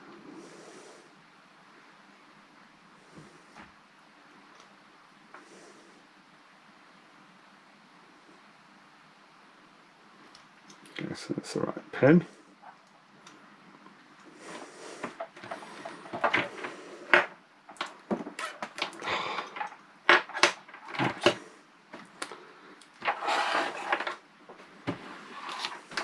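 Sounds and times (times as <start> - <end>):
hands clicking and rustling: 12.8 - 23.2.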